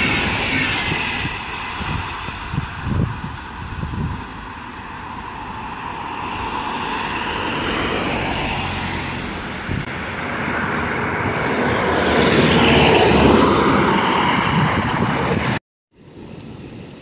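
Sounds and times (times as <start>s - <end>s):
train wheels rushing on rails: 0.0s - 8.6s.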